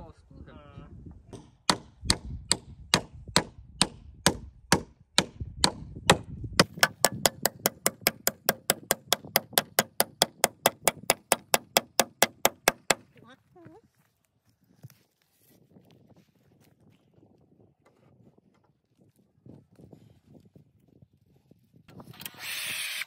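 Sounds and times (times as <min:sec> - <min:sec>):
hammer driving nails: 0:01.3 - 0:13.0.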